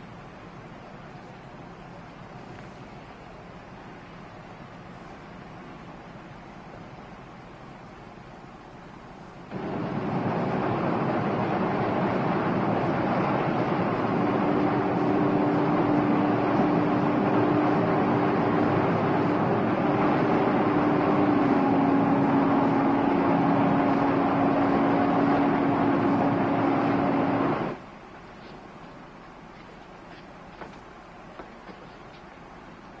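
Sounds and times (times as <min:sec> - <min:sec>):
wind: 0:00.0 - 0:33.0
boat engine running: 0:09.5 - 0:27.8.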